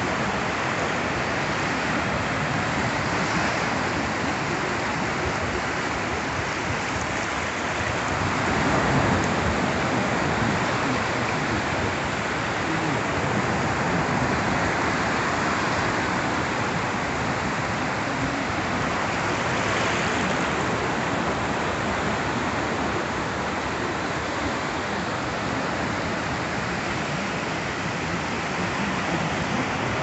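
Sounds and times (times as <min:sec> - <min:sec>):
small waves breaking on beach: 0:00.0 - 0:30.0.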